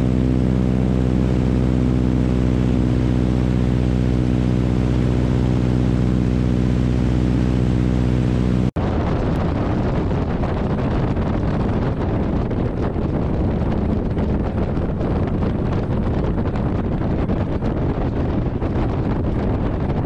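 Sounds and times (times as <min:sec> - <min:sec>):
radial engine droning: 0:00.0 - 0:08.7
low rumble: 0:00.0 - 0:20.0
wind buffeting microphone: 0:00.0 - 0:20.0.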